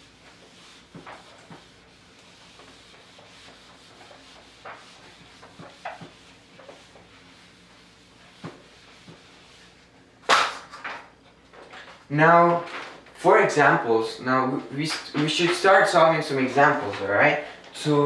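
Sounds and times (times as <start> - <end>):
eraser rubbing whiteboard: 0.0 - 9.8.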